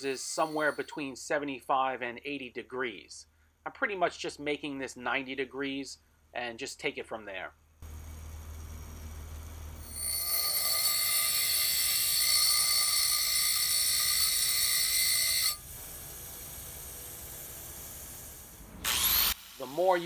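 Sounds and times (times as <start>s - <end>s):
bench grinder grinding steel: 7.8s - 16.6s.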